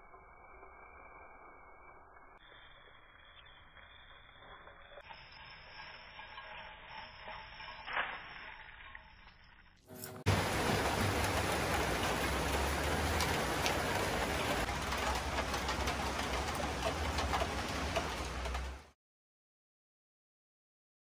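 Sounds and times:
heavy rain hissing: 9.9s - 18.9s.

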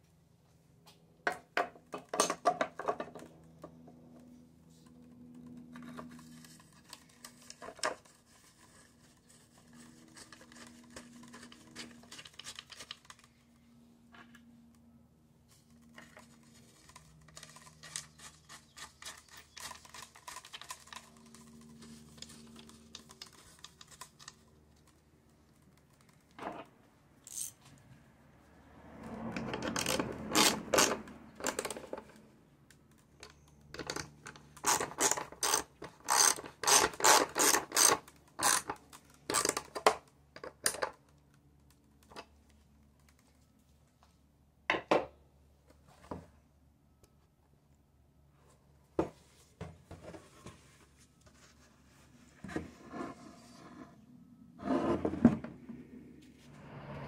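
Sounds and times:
metal clicks and scrapes of tools: 15.7s - 27.8s, 32.9s - 41.2s
ratchet wrench clicking: 27.2s - 27.6s, 34.6s - 38.7s.

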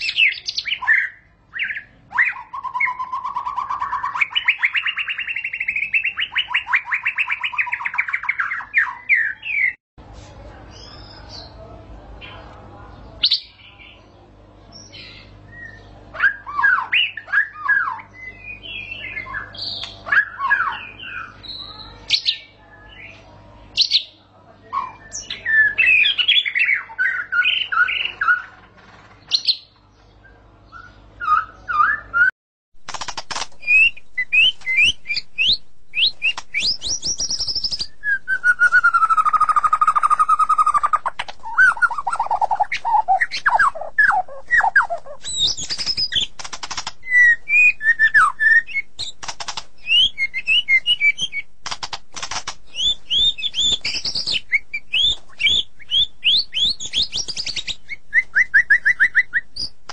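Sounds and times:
bird whistled song: 0.0s - 9.8s, 14.7s - 23.2s, 29.3s - 32.3s, 33.6s - 46.3s, 47.0s - 49.2s, 49.8s - 51.5s, 52.7s - 59.8s.

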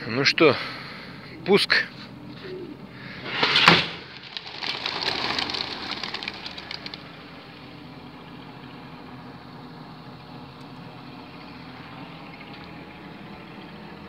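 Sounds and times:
low engine hum: 0.0s - 14.0s
rush of birds taking off: 3.0s - 7.9s
pigeon wings beating: 3.2s - 7.6s.

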